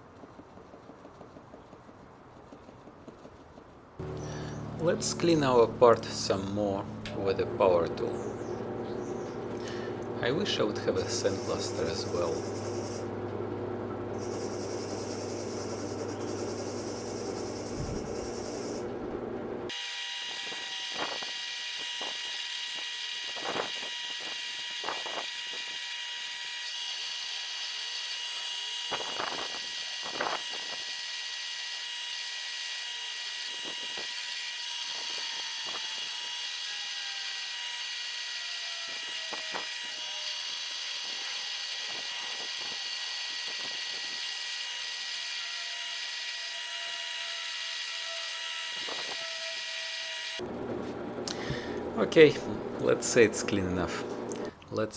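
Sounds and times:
drill press wire wheel whine: 0:04.0 - 0:54.6.

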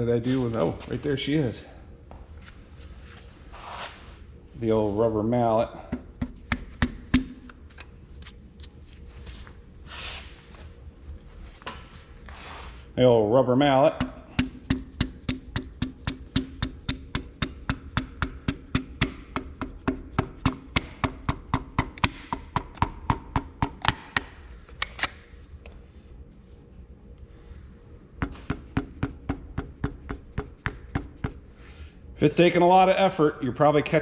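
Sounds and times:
rubber mallet tapping: 0:14.0 - 0:24.3, 0:28.2 - 0:31.4.

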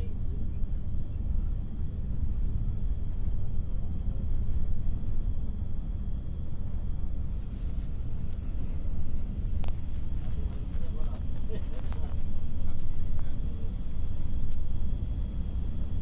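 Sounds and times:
bus engine and tyres rumbling: 0:00.0 - 0:16.0.

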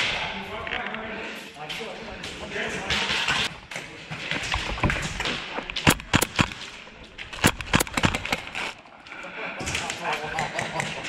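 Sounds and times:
airsoft gunfire: 0:05.7 - 0:06.6, 0:07.3 - 0:08.6.

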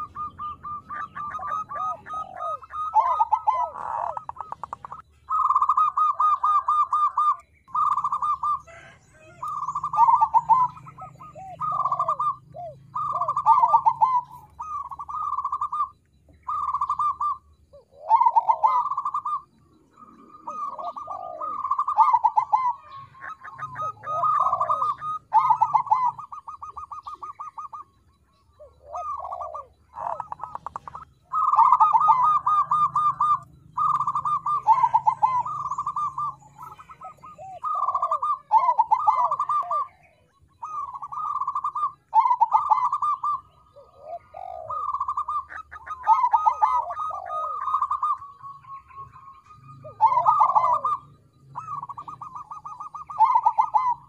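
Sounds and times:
dove cooing in trilled phrases: 0:00.0 - 0:54.0.

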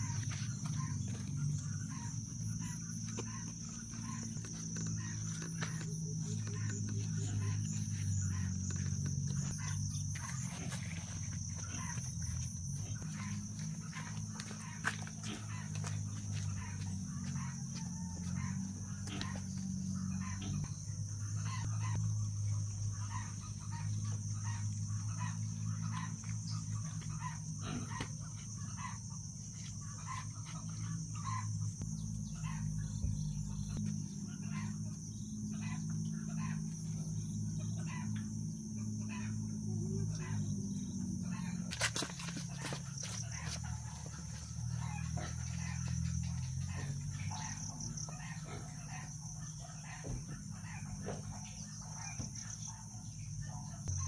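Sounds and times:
chickens clucking: 0:41.3 - 0:52.3.

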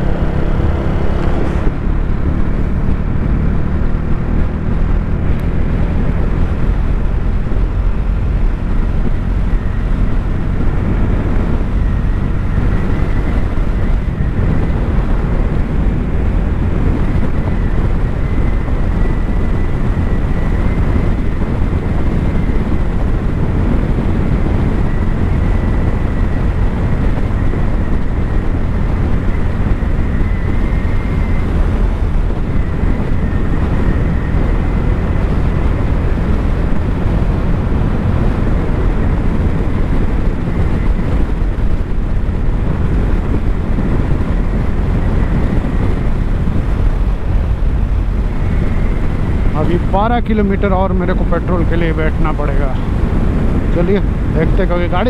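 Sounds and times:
motorcycle engine running: 0:00.0 - 0:55.0
wind rushing over microphone: 0:00.0 - 0:55.0.

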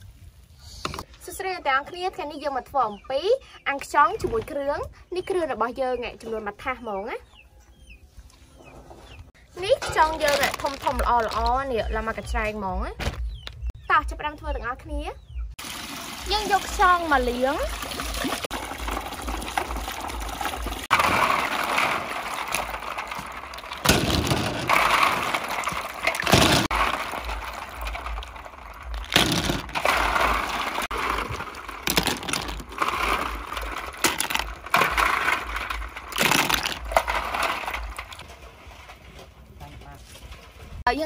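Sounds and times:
water pouring into metal basin: 0:15.6 - 0:38.2
water sloshing and splashing: 0:15.6 - 0:38.9.

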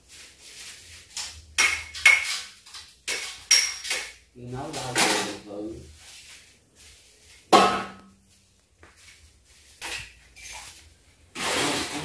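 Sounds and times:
kitchenware clanking on tiled counter: 0:01.2 - 0:05.5.

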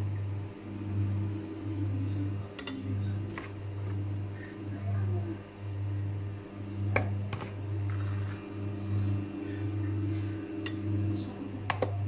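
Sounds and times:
electric stand mixer running: 0:00.0 - 0:02.6, 0:05.6 - 0:12.0.

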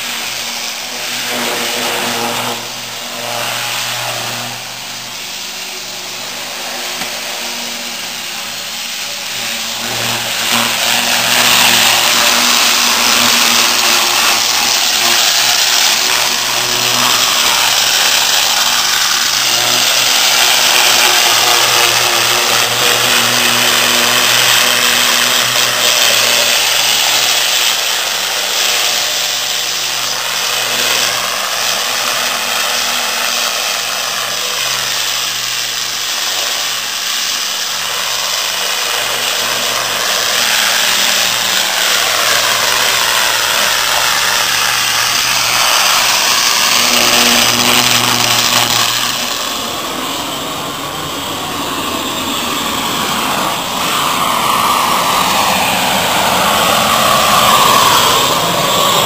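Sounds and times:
water jet hissing on metal: 0:00.0 - 0:50.2
pump motor humming: 0:00.0 - 0:59.0.

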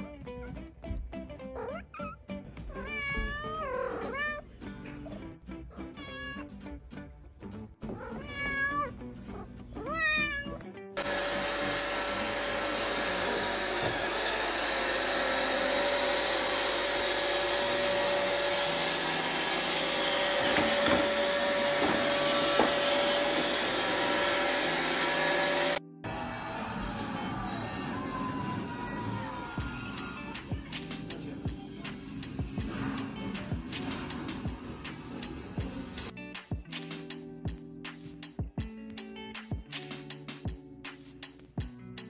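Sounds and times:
cat meowing: 0:01.5 - 0:04.5, 0:05.8 - 0:06.5, 0:07.9 - 0:10.6
robot vacuum cleaner whirring: 0:11.0 - 0:25.8.

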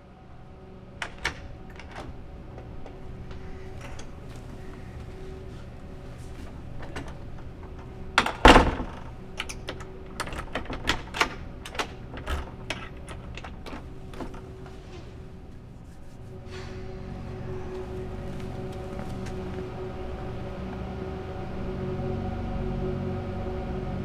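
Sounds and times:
keys rattling in a door lock: 0:01.0 - 0:15.3.

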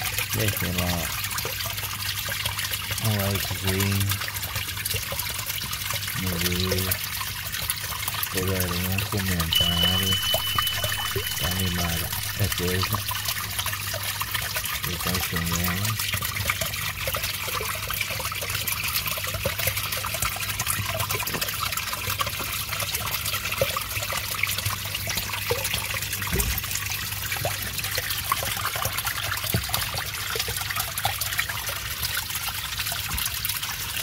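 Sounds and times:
water trickling and splashing: 0:00.0 - 0:34.0
low steady hum: 0:09.3 - 0:16.0.

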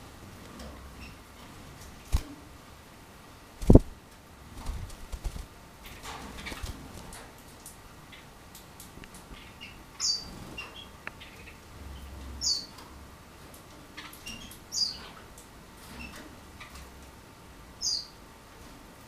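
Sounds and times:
soft canary chirps: 0:00.9 - 0:01.4, 0:09.2 - 0:13.0, 0:13.6 - 0:16.9, 0:17.8 - 0:18.2.

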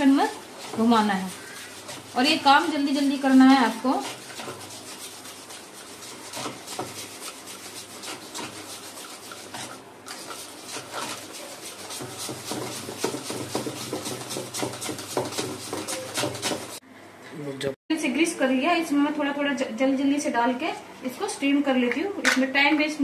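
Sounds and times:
batter stirred scraping bowl: 0:00.0 - 0:16.8.

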